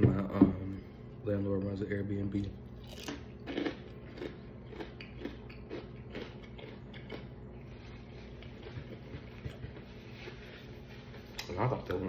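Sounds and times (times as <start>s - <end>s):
person chewing food: 2.7s - 11.5s.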